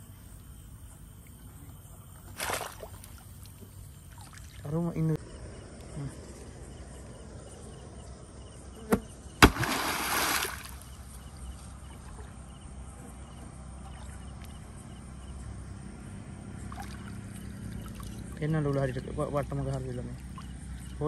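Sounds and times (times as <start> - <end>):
water splashing: 2.4 - 4.8, 9.4 - 10.9
blade smacking water: 8.9 - 10.8.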